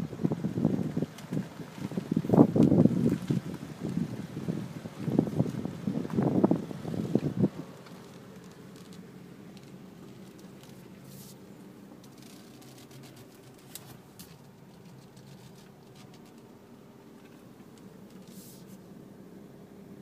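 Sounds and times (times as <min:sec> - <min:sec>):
faint low machine hum: 0:00.0 - 0:20.0.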